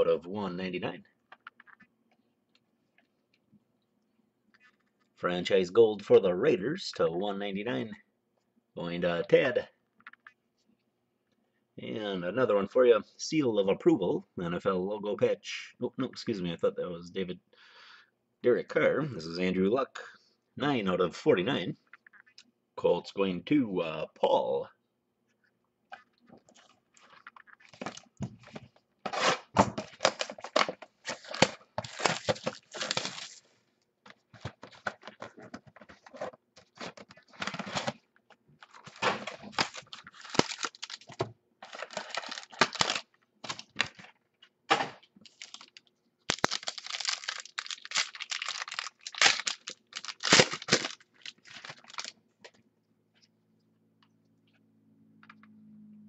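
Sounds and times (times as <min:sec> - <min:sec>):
pack wrappers tearing and crinkling: 0:30.0 - 0:33.5, 0:38.6 - 0:44.0, 0:45.2 - 0:52.1.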